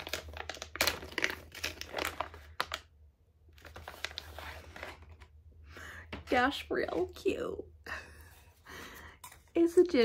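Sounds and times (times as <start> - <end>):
wrapping paper crinkling: 0.0 - 2.9, 3.5 - 5.3.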